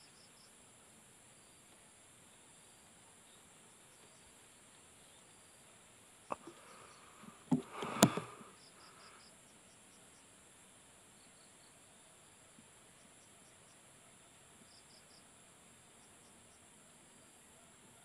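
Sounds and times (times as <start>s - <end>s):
crickets chirring: 0.0s - 17.7s
air rifle clacks: 7.5s - 8.4s.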